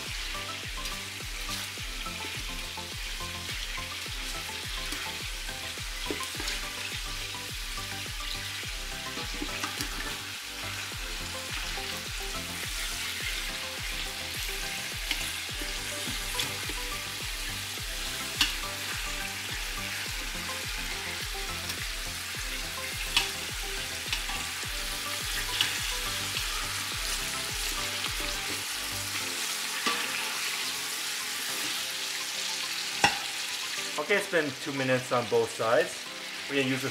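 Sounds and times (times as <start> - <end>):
chicken sizzling in hot oil: 0.0 - 36.9
metal tongs clicking against pot: 18.4 - 18.6, 23.1 - 23.4, 29.8 - 30.1.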